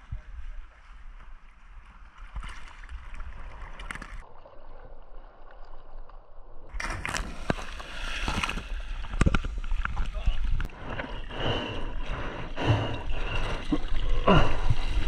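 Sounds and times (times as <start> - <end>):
water splashing: 6.7 - 15.0.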